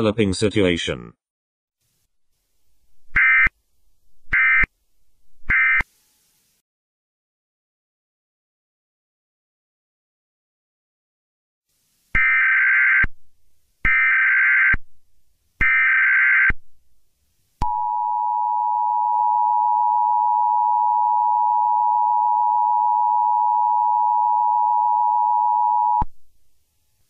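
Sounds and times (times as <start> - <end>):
data tone bursts: 17.6 - 26.0.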